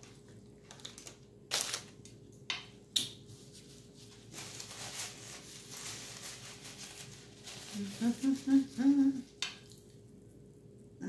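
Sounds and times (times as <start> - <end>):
paper napkin rustling: 3.3 - 9.0.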